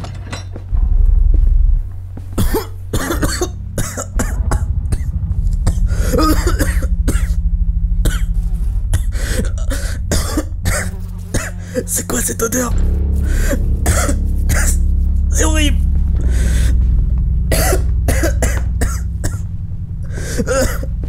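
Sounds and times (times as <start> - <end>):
steady low drone: 0.0 - 21.0
person coughing: 5.7 - 7.4, 9.0 - 12.2, 13.4 - 14.8, 17.5 - 19.4, 20.2 - 20.9.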